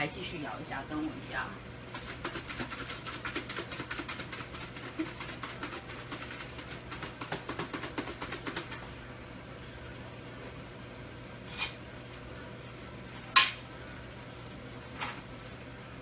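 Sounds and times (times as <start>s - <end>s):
steady low hum: 0.0s - 16.0s
food rattling in shaken lunchbox: 2.0s - 8.8s.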